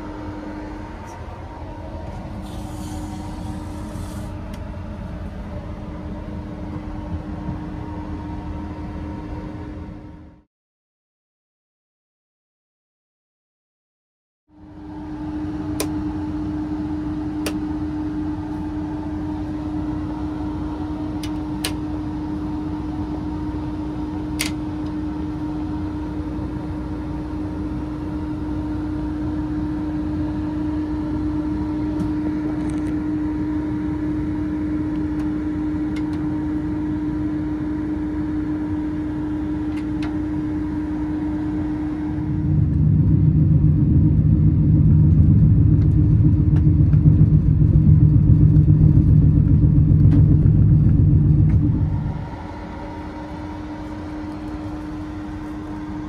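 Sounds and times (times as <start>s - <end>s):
train machinery humming: 0.0s - 10.3s, 14.5s - 56.0s
deep rumble: 0.0s - 10.5s, 40.1s - 56.0s.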